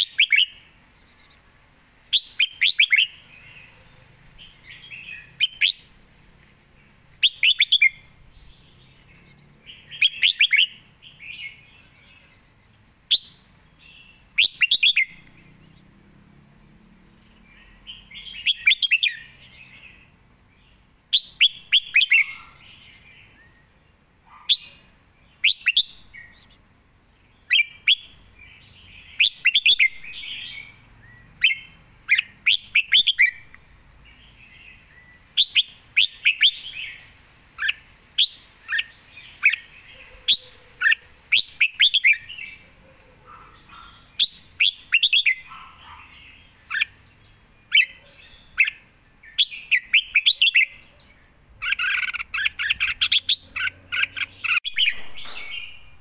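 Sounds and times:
bird singing whistled phrases: 0.0s - 0.6s, 2.1s - 3.2s, 4.8s - 5.9s, 7.2s - 8.1s, 9.8s - 11.6s, 13.1s - 13.4s, 14.0s - 15.4s, 17.8s - 19.8s, 21.1s - 23.6s, 25.4s - 26.5s, 27.5s - 28.2s, 29.2s - 33.5s, 34.9s - 37.0s, 37.6s - 42.6s, 43.7s - 46.0s, 47.7s - 51.0s, 51.6s - 56.0s.

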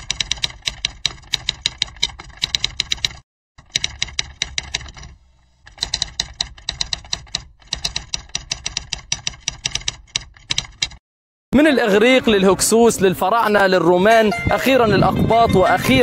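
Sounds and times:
typewriter key clicks: 0.0s - 11.0s.

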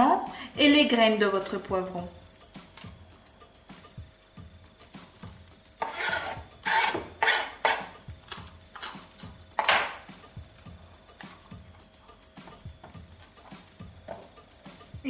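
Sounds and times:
knife scraping inside pepper: 5.8s - 7.9s.

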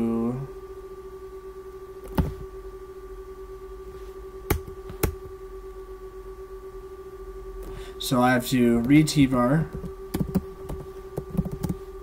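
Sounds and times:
background hum: 0.0s - 12.0s
keyboard keystrokes: 9.7s - 11.8s.

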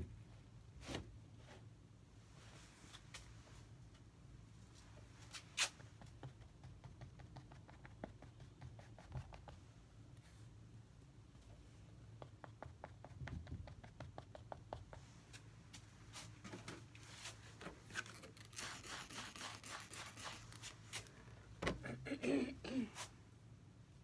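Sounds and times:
palette knife scraping canvas: 18.0s - 20.8s.

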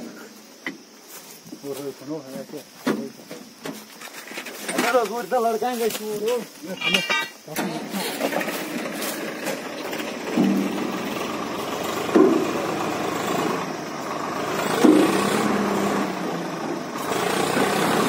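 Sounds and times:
diesel tractor engine running: 8.1s - 18.0s.

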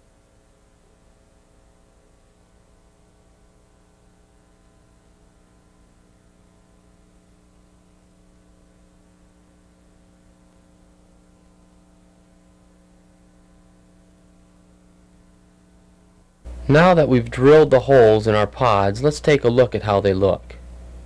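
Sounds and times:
faint electrical hum with hiss: 0.0s - 21.0s.

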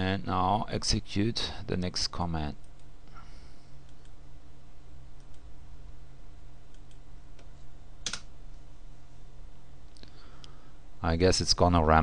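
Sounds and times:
steady low hum: 0.0s - 12.0s
keyboard and mouse clicks: 6.7s - 8.3s.

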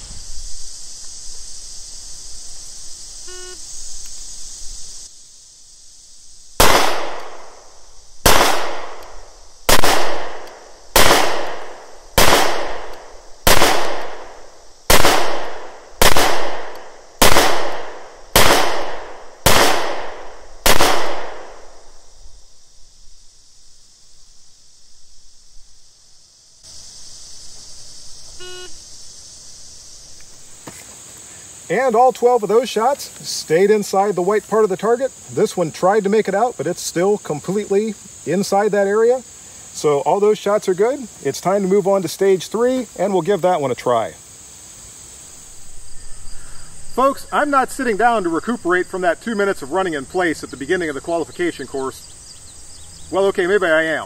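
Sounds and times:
pistol shots: 6.6s - 7.6s, 8.2s - 21.6s.

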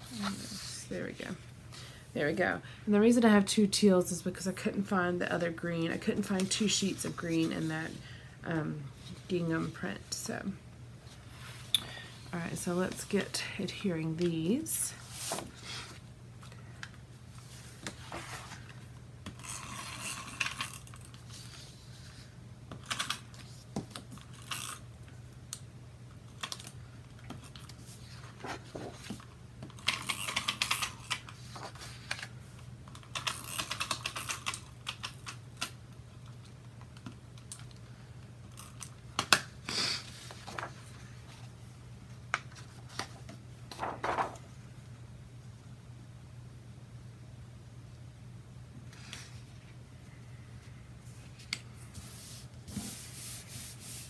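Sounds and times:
paper sheets handled: 40.2s - 41.4s, 42.4s - 44.5s.

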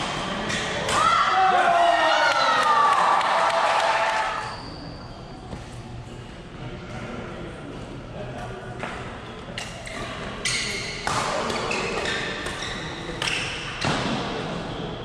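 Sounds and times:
shoes squeaking on floor: 9.8s - 13.9s.

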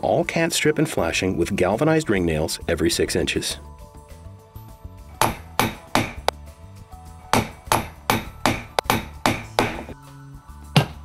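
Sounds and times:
hammer striking metal nails: 5.2s - 6.4s, 7.3s - 10.0s.

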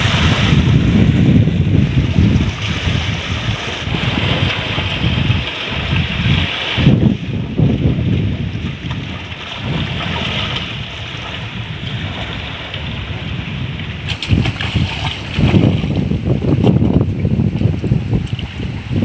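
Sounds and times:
shallow seawater lapping: 0.0s - 19.0s
wind buffeting microphone: 0.0s - 19.0s
splashes from wading: 9.0s - 13.0s, 14.0s - 16.2s.

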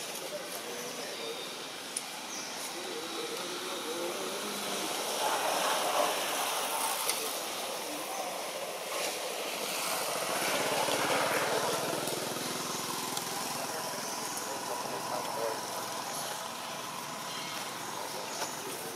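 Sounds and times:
rushing outdoor background hiss: 0.0s - 18.9s.

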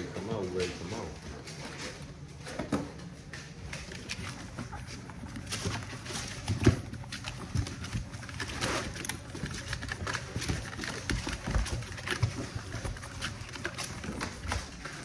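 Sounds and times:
puppies' paws scuffling: 0.0s - 15.0s.

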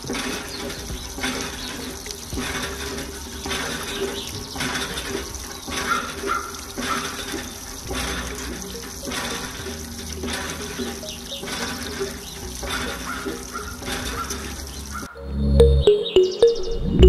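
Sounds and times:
water gushing from hand pump: 0.0s - 15.1s.

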